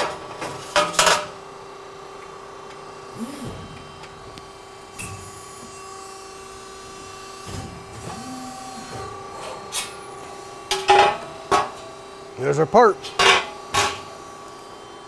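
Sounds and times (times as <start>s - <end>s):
hydraulic pump humming: 2.7s - 10.7s
rising and falling machine whines: 3.1s - 10.3s.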